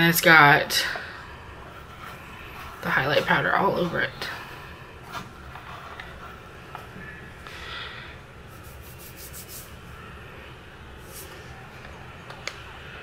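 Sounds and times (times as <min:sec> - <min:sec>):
low room hum: 0:00.0 - 0:13.0
rubbing on plastic: 0:08.5 - 0:09.8.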